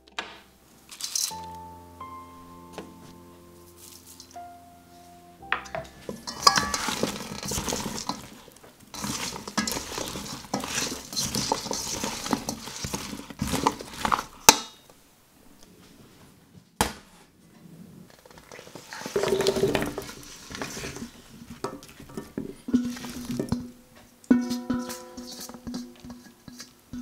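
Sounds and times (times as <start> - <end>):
vegetable pieces clattering in bowl: 0.1 - 1.5, 5.5 - 14.8, 18.4 - 27.0
tongs clinking against metal bowl: 0.9 - 1.6, 5.5 - 14.2, 24.3 - 27.0.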